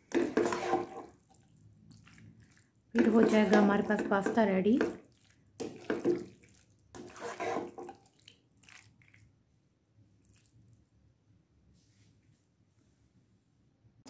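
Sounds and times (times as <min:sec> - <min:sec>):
spatula stirring pasta in a pan: 0:00.0 - 0:09.4.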